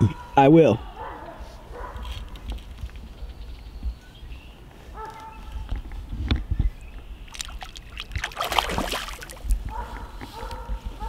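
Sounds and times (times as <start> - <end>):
fish splashing in water: 7.3 - 9.6.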